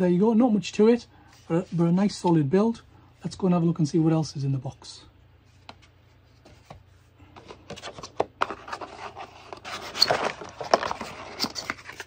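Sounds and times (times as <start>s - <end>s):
cardboard rustling: 5.5s - 12.0s
cardboard insert scraped and pulled: 8.6s - 12.0s.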